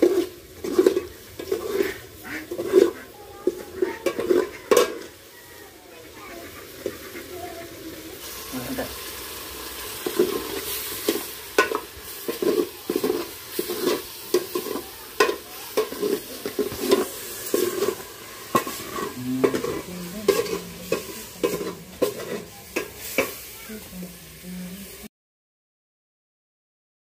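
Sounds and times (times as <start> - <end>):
metal ladle scraping a pot: 0.0 - 5.1, 9.8 - 23.5.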